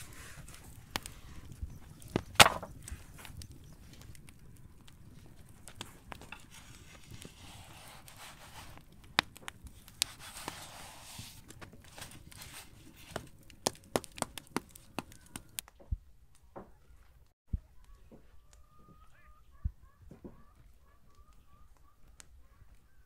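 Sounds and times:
dough rustling and sliding on griddle: 0.0 - 4.2, 5.1 - 15.5.

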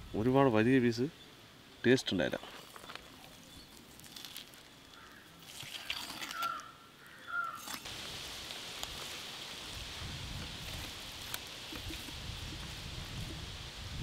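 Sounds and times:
steady watery hiss: 7.4 - 14.0.

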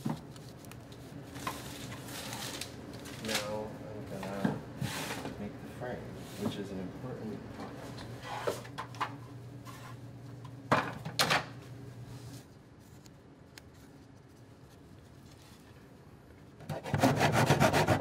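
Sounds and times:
hand saw cutting: 16.6 - 18.0.

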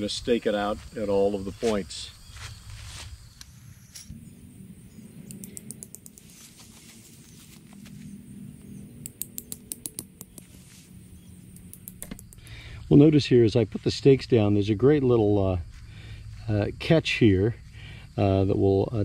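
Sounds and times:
tent stakes clicking: 5.3 - 8.1, 8.9 - 10.7, 11.5 - 12.5.

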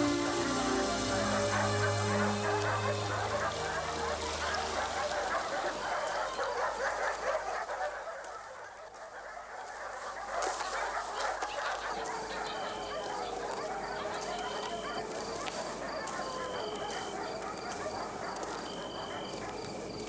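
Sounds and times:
held music chord: 0.0 - 5.9
chorus of animal calls: 0.0 - 20.0.

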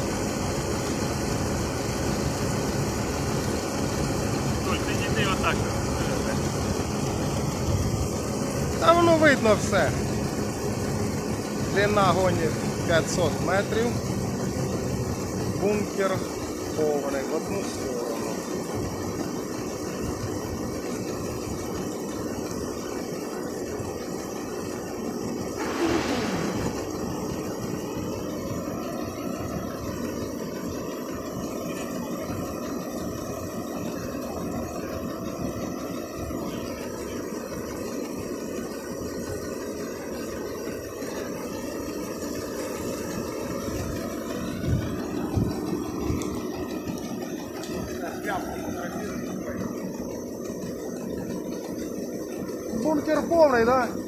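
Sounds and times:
combine harvester running: 0.0 - 54.0
brief rush of noise: 25.6 - 27.2.

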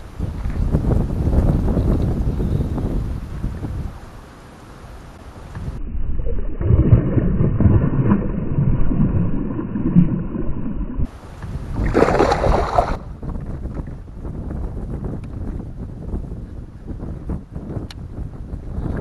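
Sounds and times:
wind on microphone: 0.0 - 4.2, 5.1 - 19.0
fish splashing in water: 11.8 - 13.1.

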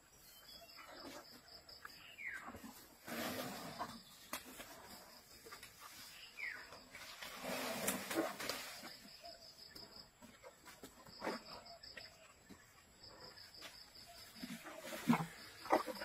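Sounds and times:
elephant crunching food: 14.1 - 16.0.

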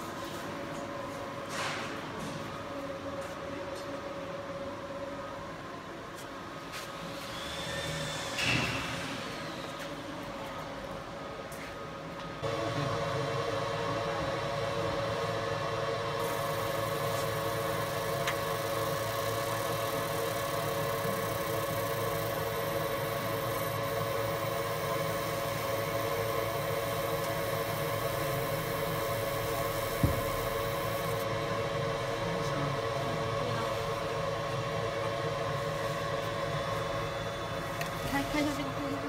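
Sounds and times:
laser machine humming: 12.4 - 39.0.

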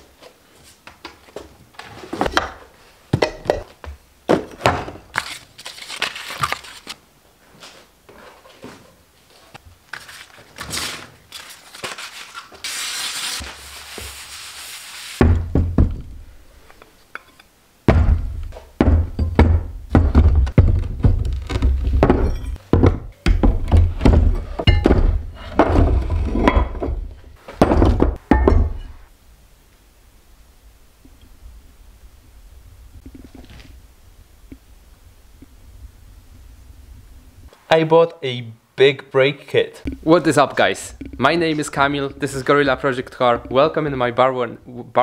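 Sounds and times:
heavy metal parts thunking: 17.9 - 29.0.

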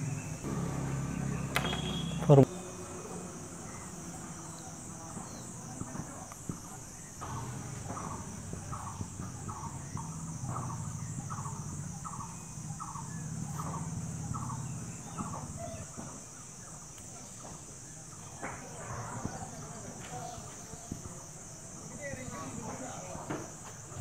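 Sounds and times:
low hum: 0.0 - 5.6
crickets chirring: 0.0 - 24.0
short squeaky call: 1.6 - 2.5.

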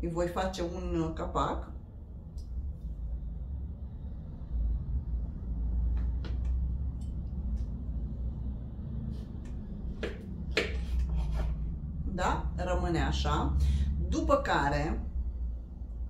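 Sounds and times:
low rumble: 0.6 - 10.5.

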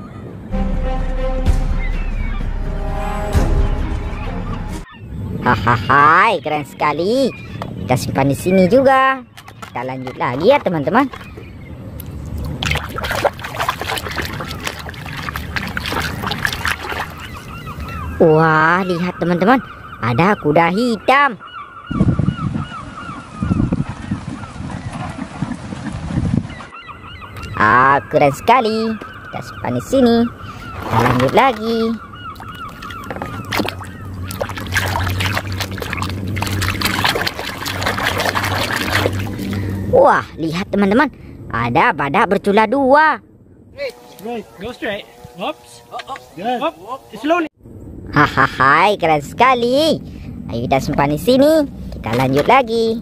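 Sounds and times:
water splashes: 7.4 - 18.2, 23.0 - 26.8, 27.4 - 40.3
hand sloshing through water: 9.3 - 18.0, 30.6 - 39.9
warbling call: 12.6 - 23.8, 26.5 - 40.4.

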